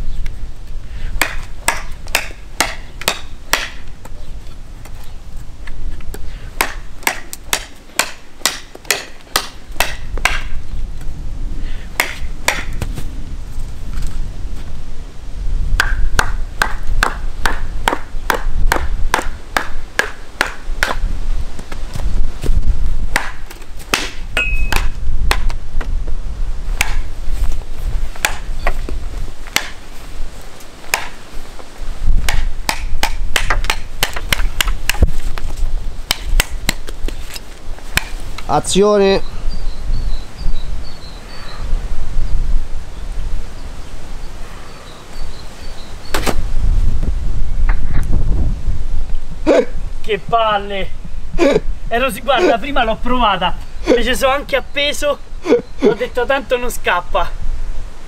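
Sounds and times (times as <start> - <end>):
knife chopping into wood: 1.2 - 3.8, 6.6 - 10.5, 12.0 - 12.9, 15.8 - 21.0, 23.1 - 25.6, 26.8 - 27.1, 28.2 - 28.4, 29.5 - 29.8, 30.9 - 31.2, 32.2 - 35.2, 36.1 - 37.0, 38.0 - 38.2, 46.1 - 46.4
wooden baton pounding knife spine: 1.2 - 3.8, 6.6 - 10.6, 12.0 - 12.9, 15.8 - 21.0, 23.1 - 25.6, 26.8 - 27.0, 28.2 - 28.4, 32.2 - 35.1.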